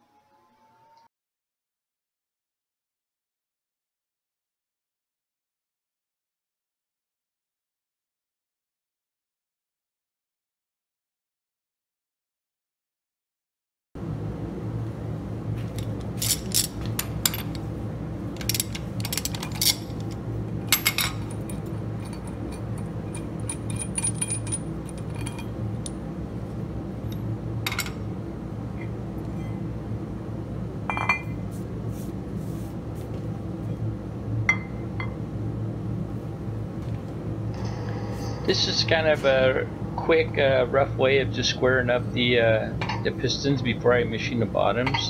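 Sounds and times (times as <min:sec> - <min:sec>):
steady low hum: 0:14.0 - 0:45.0
metallic clinks and knocks: 0:15.7 - 0:17.6, 0:18.4 - 0:26.0.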